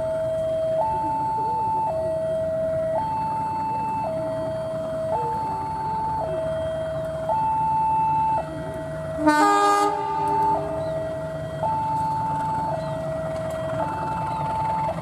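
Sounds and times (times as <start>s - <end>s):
diesel locomotive rumble: 0.0s - 15.0s
two-tone crossing alarm: 0.0s - 15.0s
train horn blast: 9.2s - 10.8s.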